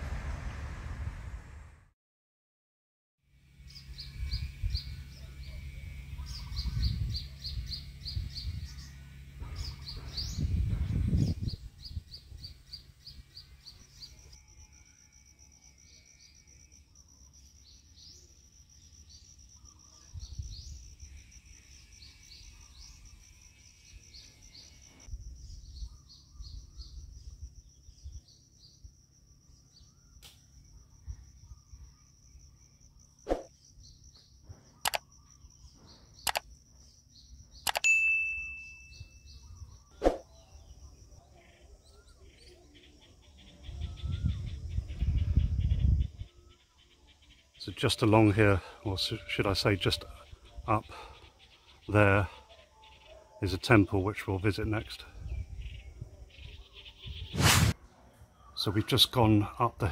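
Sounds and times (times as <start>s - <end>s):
low rumble: 0.0s - 1.9s
insect trill: 3.3s - 57.4s
birds chirping: 3.5s - 14.4s, 15.8s - 59.9s.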